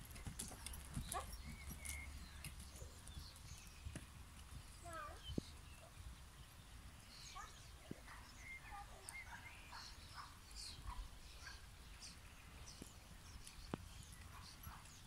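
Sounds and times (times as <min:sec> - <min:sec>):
horse hooves on gravel: 0:00.0 - 0:05.2
bird chirps: 0:00.4 - 0:04.1, 0:04.7 - 0:15.0.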